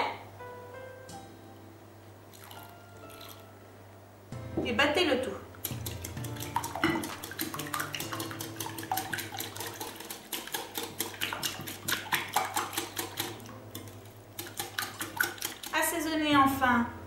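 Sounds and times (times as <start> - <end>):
liquid sloshing: 5.6 - 15.9
whisk clinking against glass bowl: 5.7 - 15.8.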